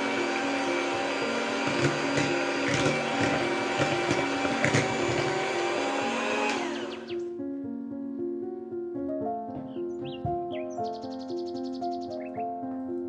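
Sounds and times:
electric hand mixer running: 0:00.0 - 0:07.2
motor winding down whine: 0:00.0 - 0:07.2.

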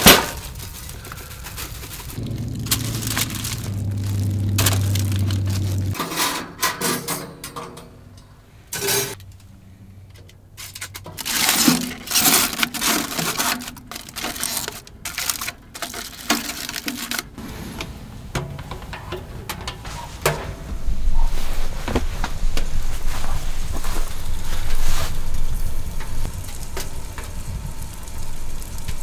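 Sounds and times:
clinks and clatter of objects: 0:00.0 - 0:03.8, 0:10.1 - 0:17.4
low steady hum: 0:00.6 - 0:06.0, 0:20.7 - 0:29.0.

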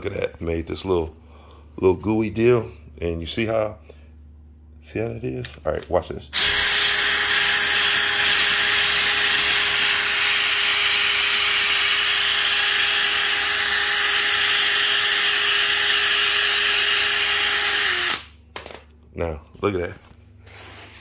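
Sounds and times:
drill motor whine: 0:06.4 - 0:18.3.

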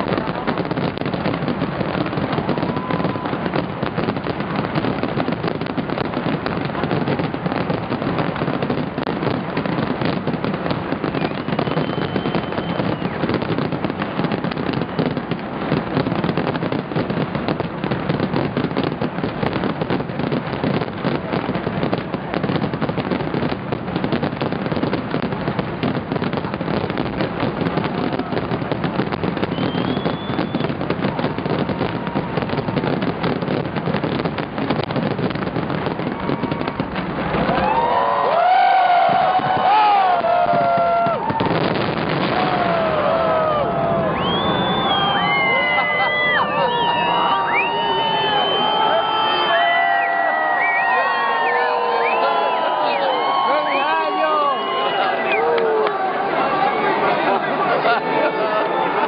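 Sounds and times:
firework whistle: 0:00.0 - 0:05.8, 0:09.6 - 0:15.3, 0:26.3 - 0:33.6, 0:35.8 - 0:56.0
fireworks bangs and crackling: 0:00.0 - 0:59.0.

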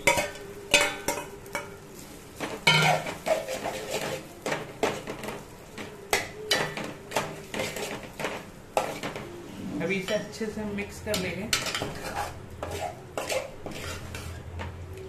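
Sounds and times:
spoon scraping and clinking pot: 0:00.0 - 0:01.8, 0:02.4 - 0:05.4, 0:06.1 - 0:09.2, 0:11.1 - 0:14.7
faint oil sizzle: 0:00.0 - 0:15.0.

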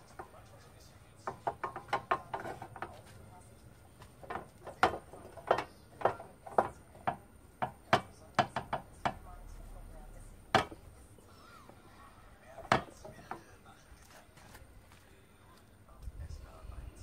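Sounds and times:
metal pan knocking on burner: 0:01.2 - 0:03.0, 0:04.2 - 0:09.3, 0:10.5 - 0:10.9.

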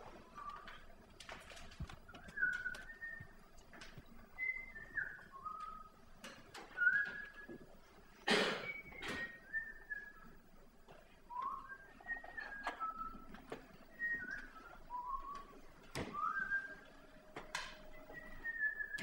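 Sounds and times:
person whistling: 0:02.1 - 0:03.4, 0:04.4 - 0:06.0, 0:06.7 - 0:07.6, 0:08.6 - 0:10.4, 0:11.3 - 0:19.0.

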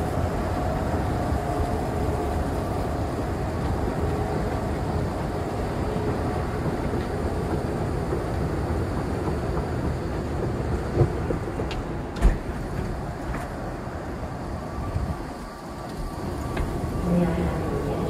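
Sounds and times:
escalators rumbling: 0:15.4 - 0:18.0.

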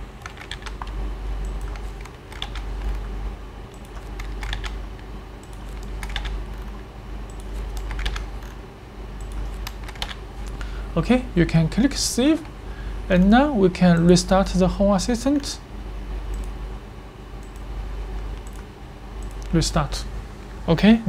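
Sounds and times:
steady low hum: 0:00.0 - 0:21.0
keyboard keys clicking: 0:00.2 - 0:03.1, 0:03.7 - 0:08.6, 0:09.2 - 0:10.2, 0:17.4 - 0:19.6.

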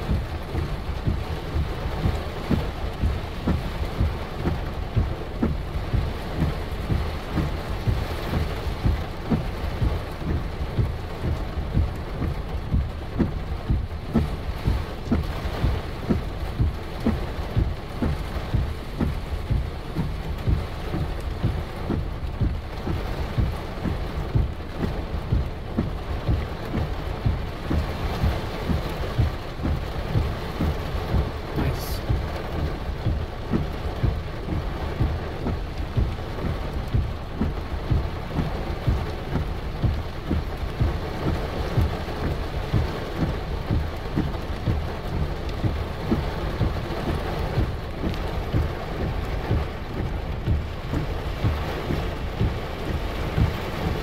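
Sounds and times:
heavy rain on vehicle: 0:00.0 - 0:54.0.

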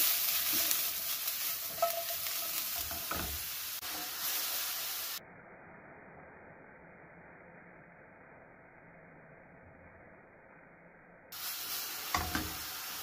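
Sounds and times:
food sizzling in hot oil: 0:00.0 - 0:05.6, 0:11.3 - 0:13.0
faint hiss: 0:00.0 - 0:09.6, 0:10.5 - 0:13.0.

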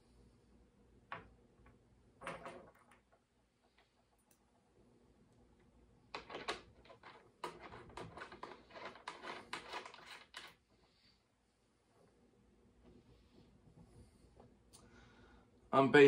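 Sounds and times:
clicks and rustles of hardware: 0:06.1 - 0:10.6.

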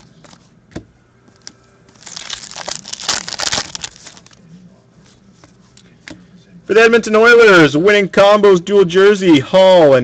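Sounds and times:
foil wrapper crinkling and tearing: 0:01.9 - 0:04.4.

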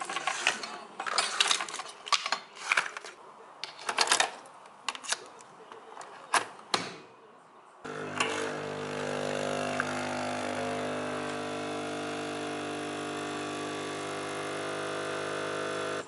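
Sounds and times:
espresso machine pump humming: 0:07.9 - 0:16.0.

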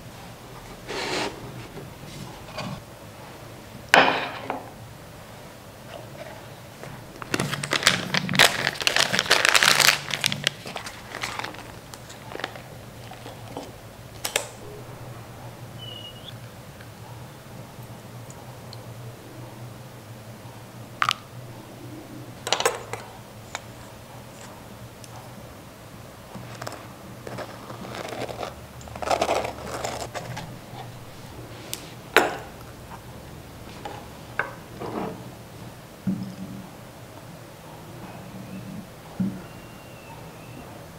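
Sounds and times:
paper bag crinkling and tearing: 0:07.1 - 0:13.7, 0:26.4 - 0:31.2.

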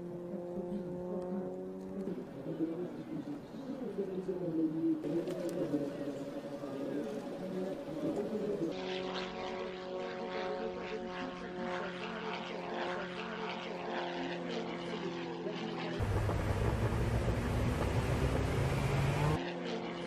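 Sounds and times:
propeller plane engine droning: 0:00.0 - 0:20.0
engine noise inside cockpit: 0:16.0 - 0:20.0.

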